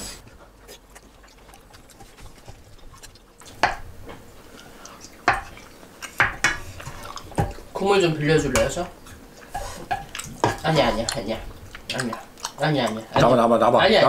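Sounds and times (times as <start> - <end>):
wet stirring in frying pan: 0.1 - 14.0
utensils clicking on pan: 4.9 - 7.6.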